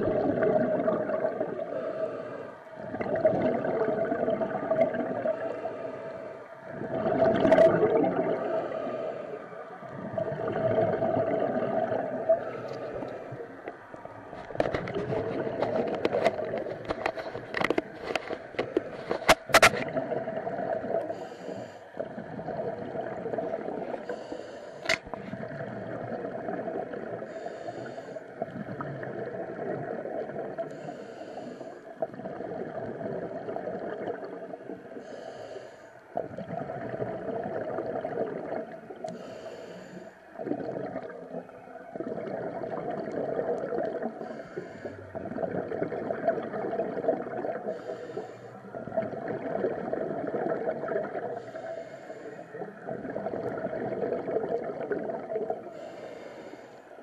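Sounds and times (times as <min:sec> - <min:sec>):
steady underwater hum: 0:00.0 - 0:57.0
sharp clicks and knocks: 0:14.4 - 0:19.9
diver regulator breath hissing: 0:21.1 - 0:22.0, 0:23.9 - 0:25.0, 0:27.3 - 0:28.3, 0:30.7 - 0:31.9, 0:35.0 - 0:36.0, 0:39.1 - 0:40.2, 0:44.2 - 0:45.0, 0:47.6 - 0:48.6, 0:51.3 - 0:52.6, 0:55.7 - 0:56.9.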